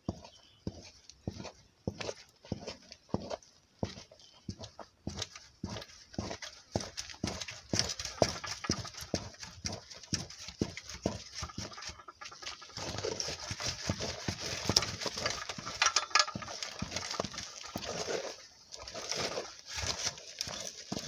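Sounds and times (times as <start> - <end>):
thick dough being mashed: 0.0 - 21.0
wooden stick knocking on metal pot: 14.7 - 17.2.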